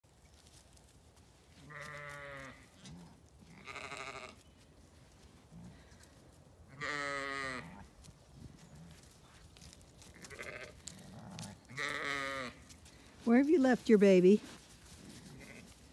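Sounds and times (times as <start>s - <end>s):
sheep bleating: 1.6s - 4.4s, 6.7s - 7.8s, 10.1s - 12.6s, 15.3s - 15.8s.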